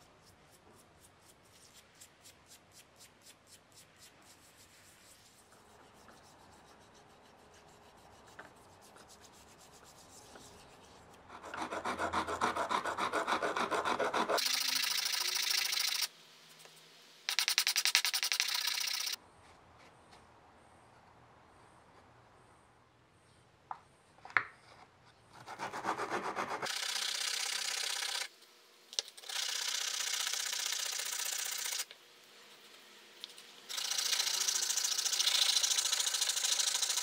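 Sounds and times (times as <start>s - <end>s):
toothbrush scrubbing metal: 33.7s - 37.0s.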